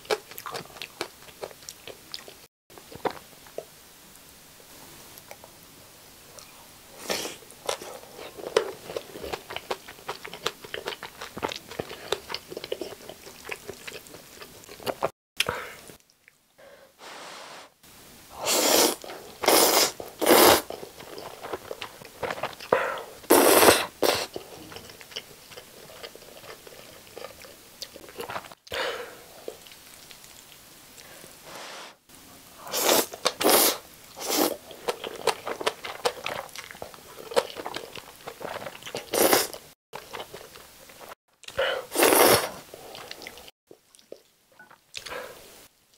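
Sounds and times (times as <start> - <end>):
chewing with crunches: 0.0 - 3.7, 7.6 - 16.4, 19.0 - 31.2, 34.2 - 45.2
slurping noodles: 18.4 - 21.6, 23.3 - 24.4, 32.7 - 34.6, 38.4 - 39.6, 41.9 - 42.9.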